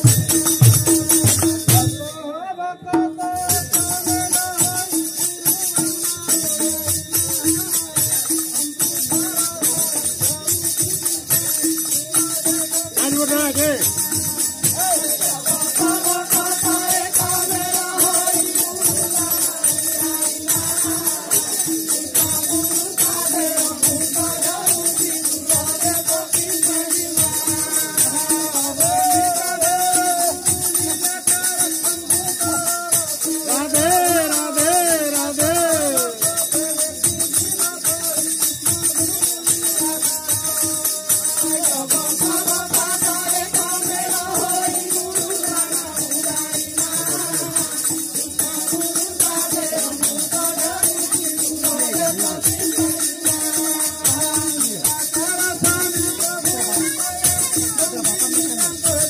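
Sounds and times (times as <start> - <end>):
barrel drum: 0.0 - 2.1
metallic jingling percussion: 0.0 - 59.0
people singing: 0.0 - 59.0.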